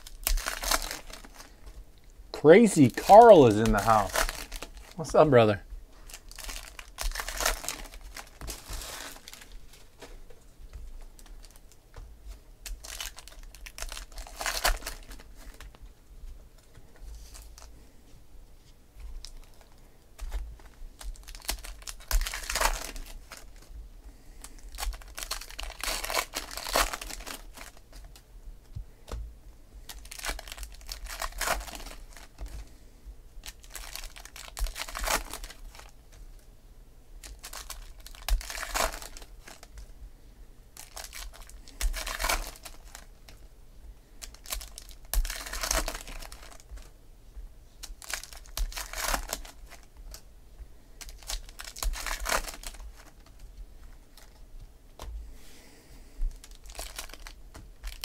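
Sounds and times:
foil wrappers tearing and crumpling: 0:00.0 - 0:01.6, 0:02.6 - 0:09.6, 0:12.6 - 0:15.7, 0:21.0 - 0:23.7, 0:24.4 - 0:28.2, 0:29.9 - 0:32.5, 0:33.4 - 0:36.0, 0:37.2 - 0:39.9, 0:40.8 - 0:43.4, 0:44.2 - 0:46.9, 0:47.8 - 0:50.0, 0:51.0 - 0:53.4, 0:56.3 - 0:58.0
cards rustling and clicking: 0:00.0 - 0:01.8, 0:02.6 - 0:15.8, 0:19.0 - 0:23.7, 0:24.3 - 0:28.8, 0:29.8 - 0:32.7, 0:33.4 - 0:36.0, 0:37.2 - 0:39.9, 0:40.8 - 0:43.5, 0:44.2 - 0:46.9, 0:47.8 - 0:50.2, 0:50.9 - 0:55.0, 0:56.2 - 0:58.0.

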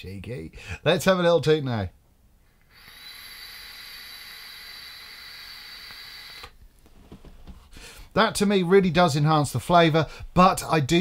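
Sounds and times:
air hissing during inhale: 0:02.5 - 0:06.6
faint high whistle: 0:02.7 - 0:06.6.

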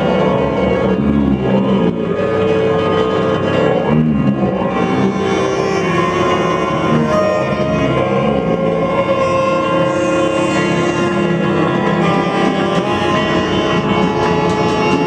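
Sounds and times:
guitar and saxophone drone: 0:00.0 - 0:15.0.

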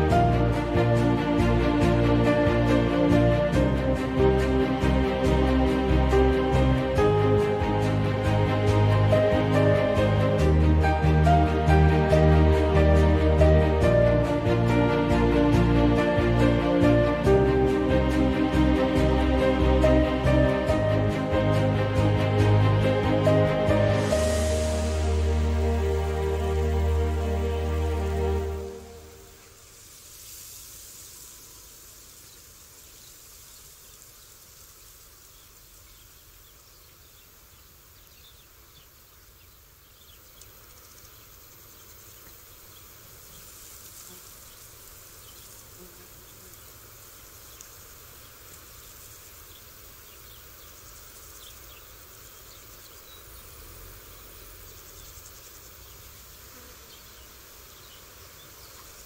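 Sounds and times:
high-pitched insect hum: 0:23.7 - 0:59.0
insect chirps: 0:28.3 - 0:59.0.

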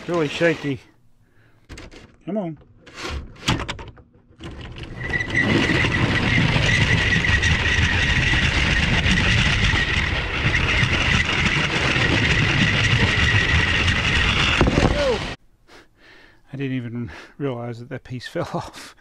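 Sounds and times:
wheels rattling on plastic track: 0:00.0 - 0:00.8, 0:04.4 - 0:15.4
toy train electric motor whine: 0:04.7 - 0:15.4.

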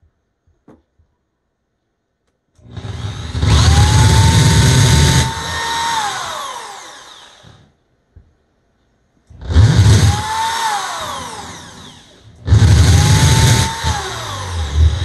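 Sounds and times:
electric drill boring: 0:02.6 - 0:07.7, 0:09.3 - 0:15.0.

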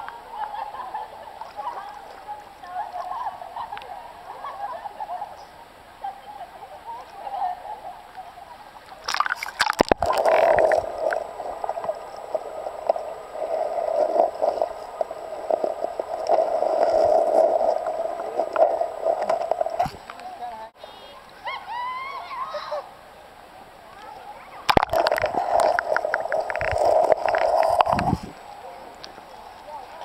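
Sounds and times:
river water lapping: 0:00.0 - 0:20.7
splash: 0:08.8 - 0:12.0, 0:24.7 - 0:28.3
underwater gurgling and bubbling: 0:09.1 - 0:20.0, 0:24.7 - 0:28.5.

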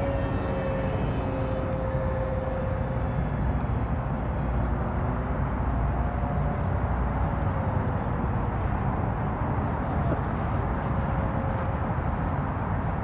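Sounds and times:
model jet fan whine: 0:00.0 - 0:08.5.

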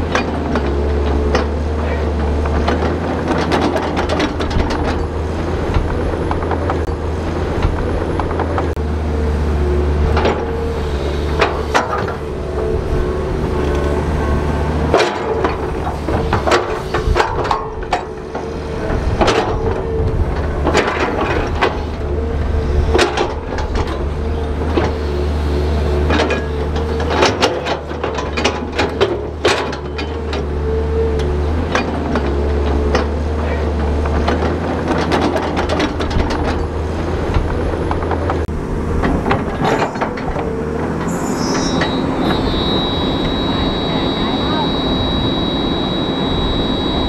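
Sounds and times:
bulldozer diesel engine running: 0:00.0 - 0:47.0
sharp metal clanks and knocks: 0:14.9 - 0:18.5.

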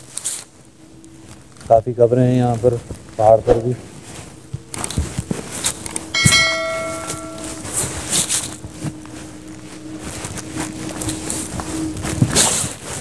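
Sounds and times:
bell ringing: 0:06.2 - 0:08.2.

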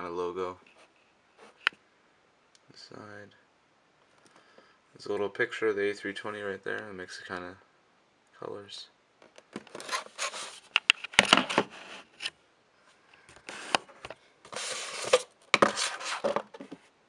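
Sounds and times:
cardboard box rubbing and scraping: 0:14.5 - 0:16.5.

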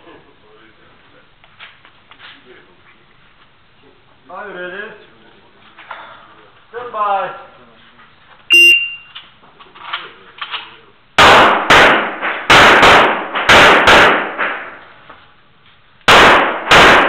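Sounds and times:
pistol shots: 0:11.2 - 0:14.8, 0:16.1 - 0:17.0
gunshot echo: 0:11.2 - 0:15.0, 0:16.1 - 0:17.0.

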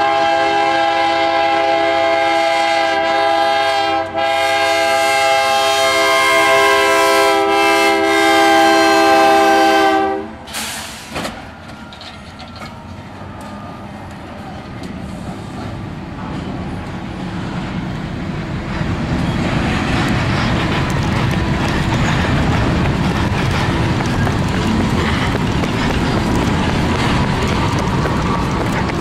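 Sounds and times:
locomotive air horn blast: 0:00.0 - 0:11.2
train rolling past rumble: 0:00.0 - 0:29.0
train wheel clicks: 0:18.7 - 0:29.0.

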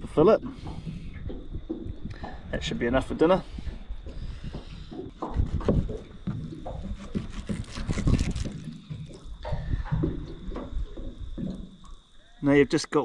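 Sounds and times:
water lapping against boat: 0:00.0 - 0:12.7
wet handling of fish: 0:05.9 - 0:12.4
knife cutting fish on wooden board: 0:06.8 - 0:08.6.

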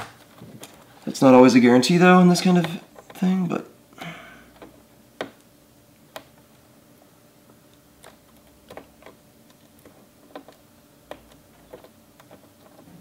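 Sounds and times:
faint small clicks and taps: 0:07.7 - 0:12.9.

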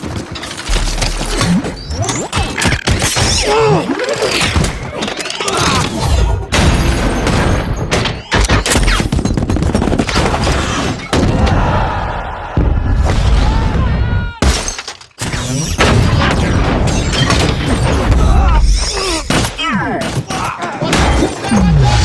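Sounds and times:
whirring robot mechanical sounds: 0:00.6 - 0:06.0.

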